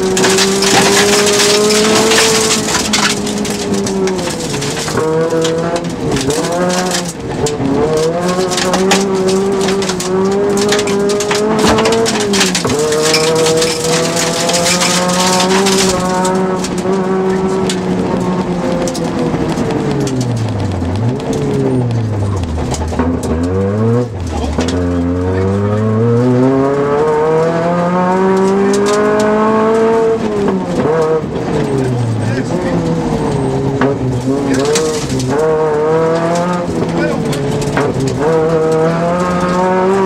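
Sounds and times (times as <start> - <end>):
stones clattering against underbody: 0.0 - 16.9
rally car engine at high revs: 0.0 - 40.0.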